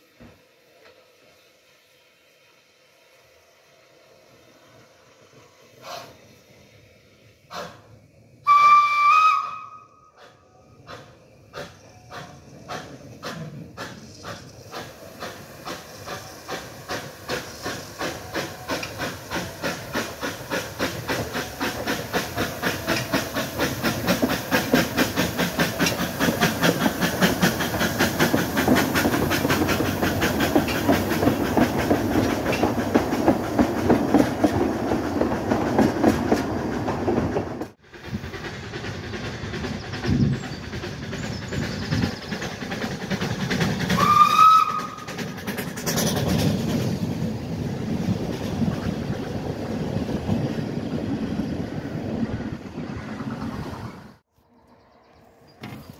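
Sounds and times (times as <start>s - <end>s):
steam hissing: 0.0s - 36.0s, 37.7s - 52.5s
steam locomotive exhaust chuffs: 0.0s - 54.2s
train whistle blast: 8.4s - 10.5s, 44.0s - 45.1s.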